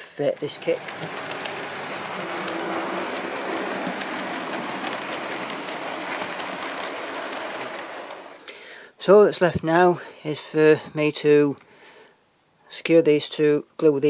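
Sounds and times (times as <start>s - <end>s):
model train wheels on rail: 0.0s - 8.7s.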